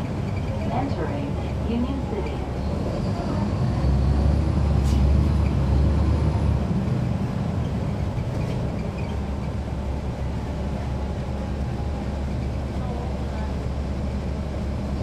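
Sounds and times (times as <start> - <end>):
bus diesel engine rumble: 0.0 - 15.0.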